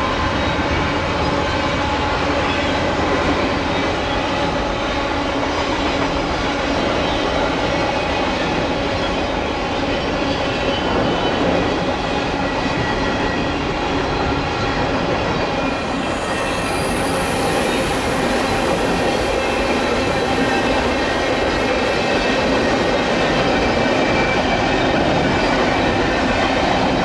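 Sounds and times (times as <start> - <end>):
train wheels rumbling on rail: 0.0 - 27.0
faint high whining tones: 15.2 - 26.4.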